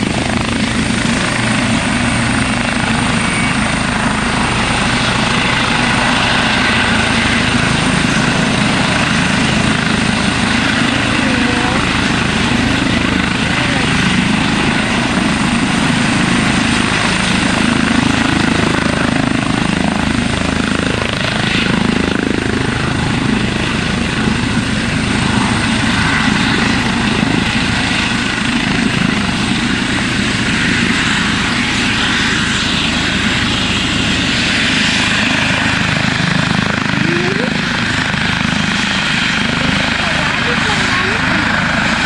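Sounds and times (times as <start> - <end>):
helicopter rotors and turbines: 0.0 - 42.0
thin high turbine whine: 0.0 - 42.0.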